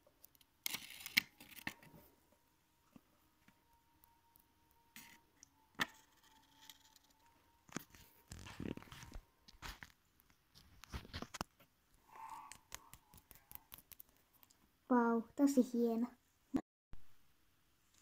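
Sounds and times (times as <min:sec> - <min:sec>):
paper rustling: 0:07.7 - 0:11.6.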